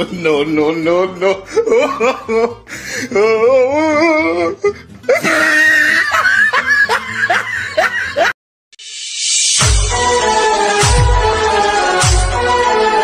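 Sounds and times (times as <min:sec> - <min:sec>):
electronic music with heavy bass: 0:08.8 - 0:12.8.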